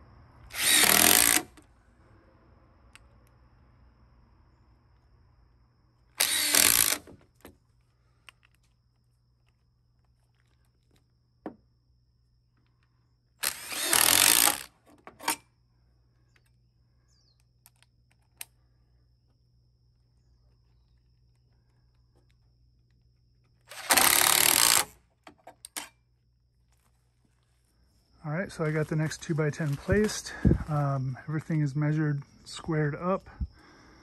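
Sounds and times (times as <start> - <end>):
power tool bursts: 0.5 - 1.6, 6.2 - 7.2, 13.4 - 15.4, 23.7 - 25.0.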